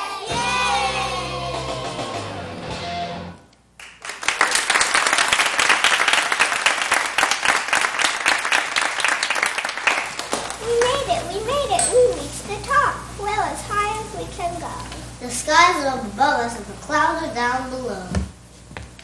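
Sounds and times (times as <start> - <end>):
audience applauding: 3.8 - 11.2.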